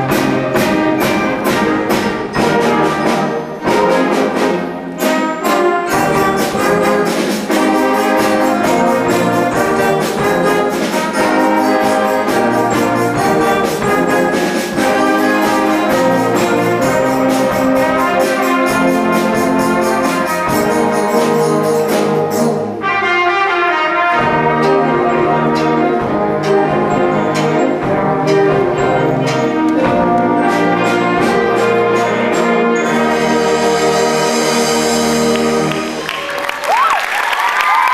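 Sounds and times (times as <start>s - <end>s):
drum strikes: 0.0s - 22.6s
concert band playing: 0.0s - 37.9s.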